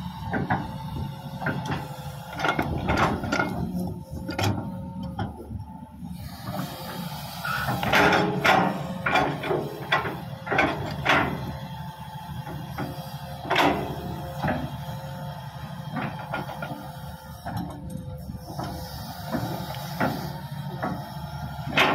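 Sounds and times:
diesel machinery rumbling: 0.0s - 21.9s
metal clanks and squeaks: 7.4s - 11.5s.

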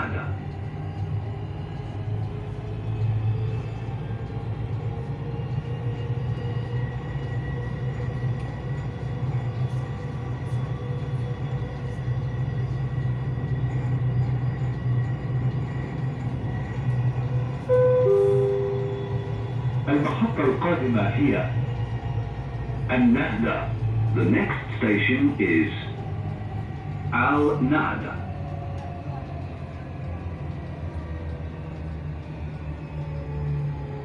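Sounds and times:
train rumbling: 0.0s - 34.0s
two-note chime over speakers: 17.8s - 19.2s.

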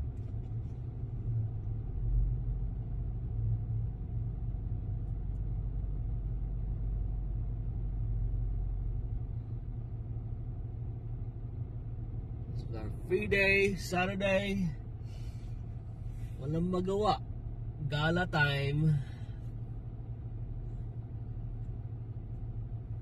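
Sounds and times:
vehicle low rumble: 0.0s - 23.0s.

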